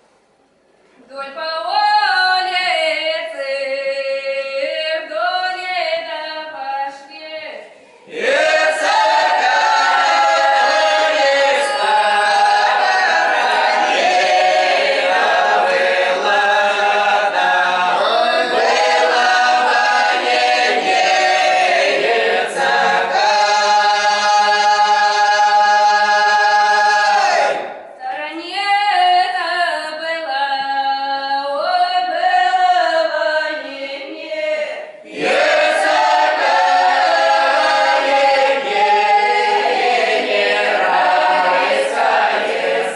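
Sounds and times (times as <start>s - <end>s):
mixed choir singing unaccompanied: 8.0s - 27.8s, 32.0s - 42.9s.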